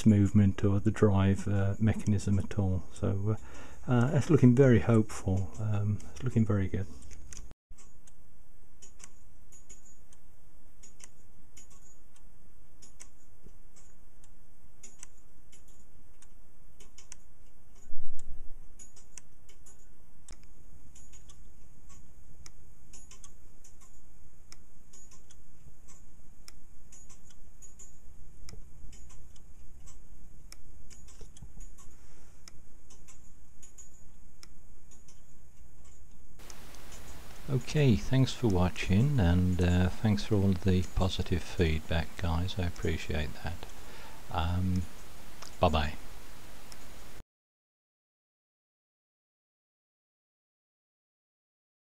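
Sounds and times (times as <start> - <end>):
clockwork ticking: 0.0 - 8.2, 18.7 - 47.2
pawl clicking over ratchet teeth: 10.8 - 46.9.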